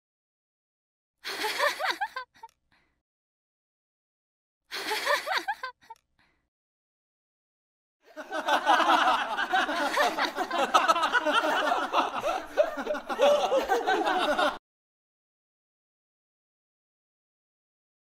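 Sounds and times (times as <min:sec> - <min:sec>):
crowd talking and laughing: 0:08.3 - 0:14.6.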